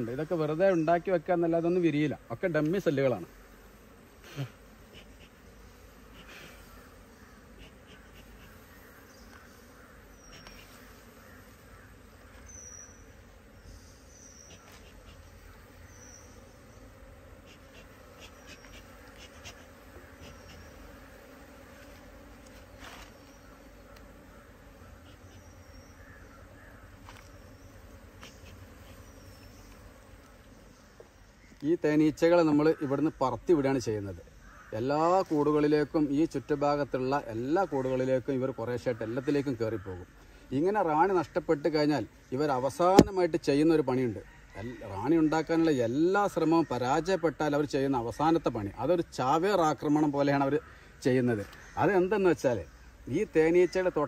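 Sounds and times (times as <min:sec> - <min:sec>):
honeybees buzzing faintly: 0:00.0 - 0:54.0.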